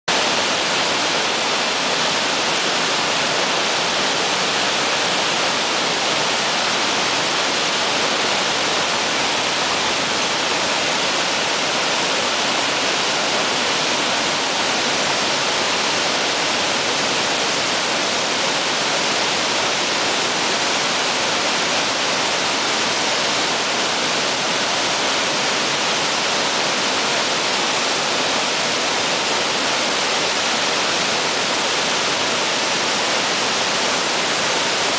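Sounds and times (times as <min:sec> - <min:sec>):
waterfall rushing: 0:00.1 - 0:34.9.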